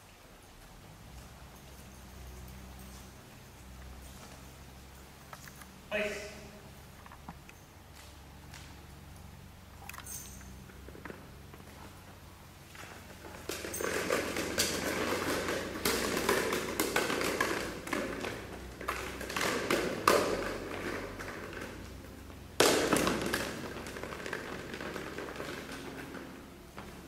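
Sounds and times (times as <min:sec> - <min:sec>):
footsteps: 0:00.0 - 0:05.8
rubber ball bouncing on hard floor: 0:13.1 - 0:27.0.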